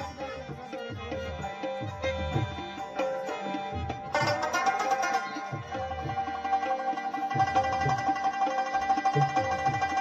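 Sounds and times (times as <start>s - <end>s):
plucked strings: 1.4s - 10.0s
low drum beats: 3.8s - 10.0s.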